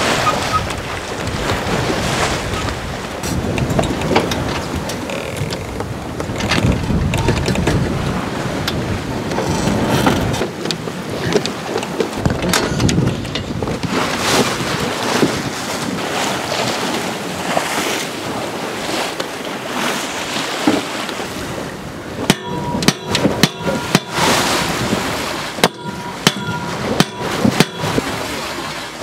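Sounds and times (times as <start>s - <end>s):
wind and sea rushing: 0.0s - 29.0s
hammer striking metal pole: 22.2s - 24.9s, 25.6s - 28.2s.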